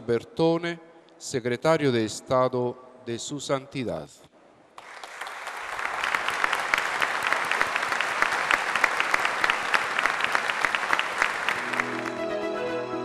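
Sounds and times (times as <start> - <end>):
crowd applauding: 4.8 - 12.8.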